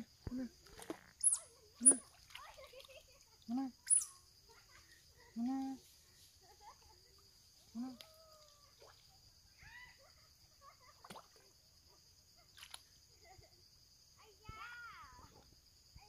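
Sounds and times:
high drone of insects: 0:00.0 - 0:16.0
baby otter squeaky chirps: 0:01.2 - 0:02.0, 0:03.8 - 0:04.2.

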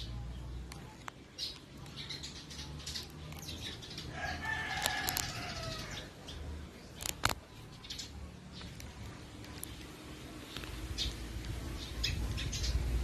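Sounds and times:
rooster crowing: 0:04.1 - 0:06.1
clicks and rustles: 0:04.7 - 0:05.4, 0:06.9 - 0:07.6.

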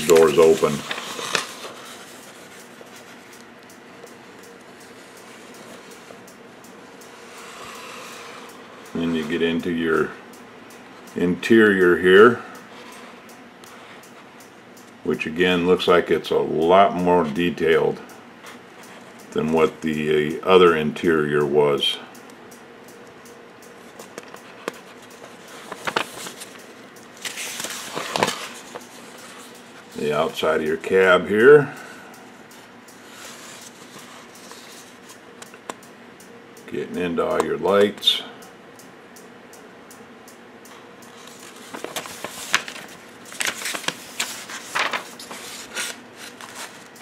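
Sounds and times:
pages turning: 0:00.0 - 0:03.2, 0:25.6 - 0:26.6, 0:27.2 - 0:29.5, 0:41.2 - 0:46.9
paper pages rustling: 0:00.0 - 0:03.2, 0:25.5 - 0:26.6, 0:27.2 - 0:29.5, 0:41.2 - 0:47.0.

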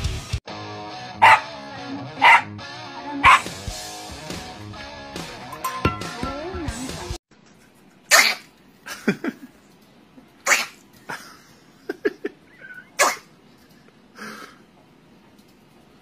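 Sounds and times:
small dog snarling and snapping: 0:08.1 - 0:08.5, 0:10.4 - 0:10.8.

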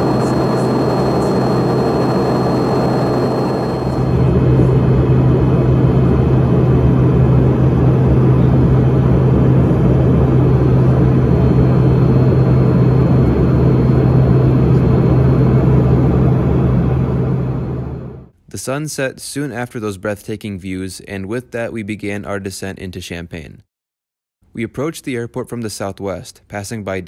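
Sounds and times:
rush of airflow: 0:00.0 - 0:04.7
jet engine hum: 0:00.0 - 0:18.3.

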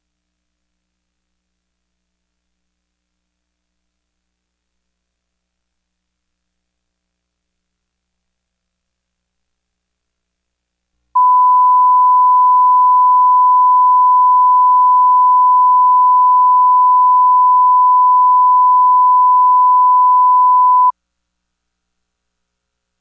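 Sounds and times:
steady test tone beep: 0:11.2 - 0:20.9.

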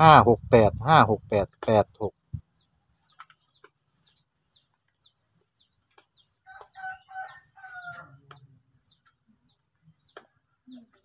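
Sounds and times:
small birds chirping: 0:00.0 - 0:11.0
rooster crowing: 0:06.4 - 0:08.2.

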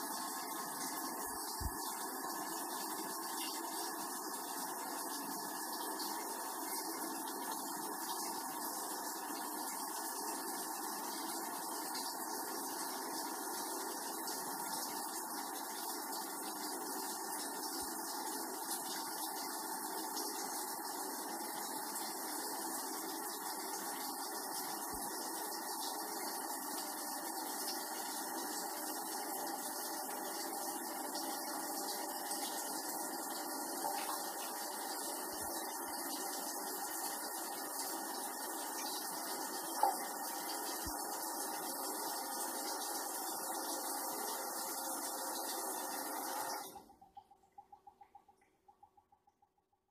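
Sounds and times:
toilet cistern refilling: 0:00.0 - 0:49.1.

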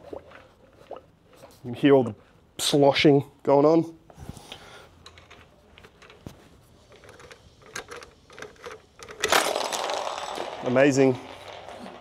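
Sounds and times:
tools clattering: 0:07.0 - 0:12.0.

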